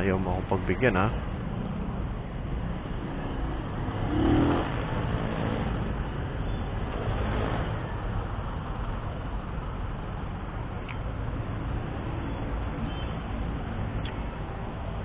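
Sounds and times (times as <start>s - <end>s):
motorcycle engine revving: 3.2s - 6.1s.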